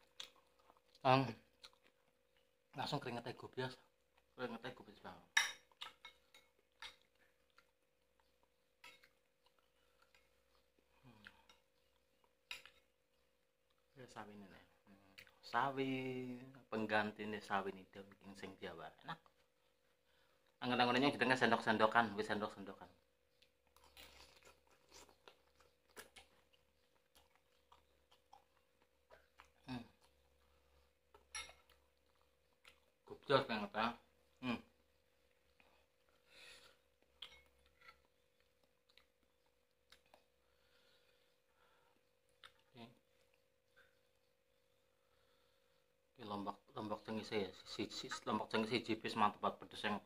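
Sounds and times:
person slurping and chewing noodles: 23.4s - 33.2s
metal fork clinking ceramic bowl: 31.3s - 31.6s.

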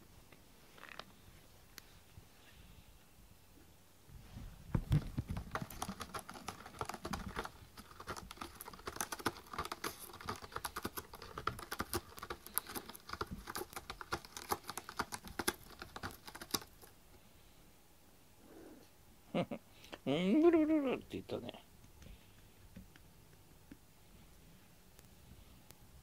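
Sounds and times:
cat licking and chewing: 5.3s - 16.9s.

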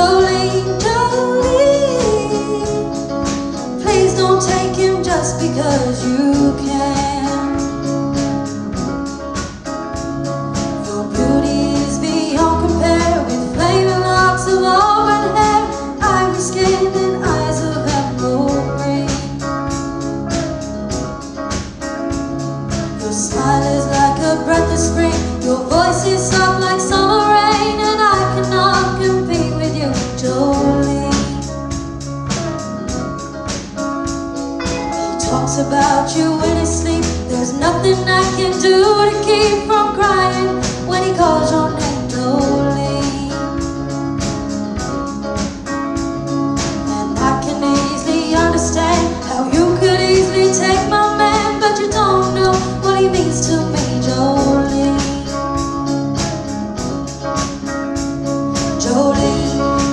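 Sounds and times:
person singing: 0.0s - 8.0s, 10.7s - 19.7s, 22.9s - 31.6s, 34.6s - 43.8s, 46.8s - 55.8s, 58.7s - 59.9s
live band playing: 0.0s - 59.9s.

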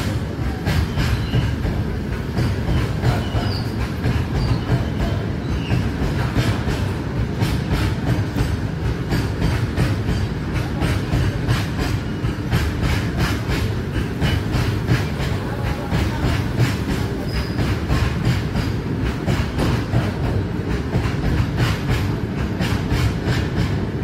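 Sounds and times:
low rumble of train wheels: 0.0s - 24.0s
wheels clacking over rail joints: 0.0s - 24.0s.

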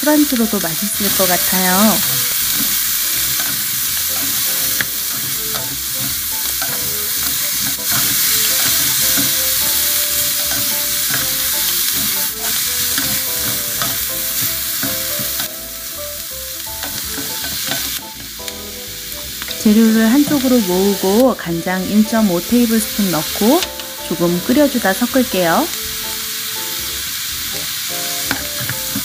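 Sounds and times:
food sizzling in hot oil: 0.0s - 29.0s
spatulas scraping a pan: 0.3s - 15.8s, 16.7s - 18.6s.

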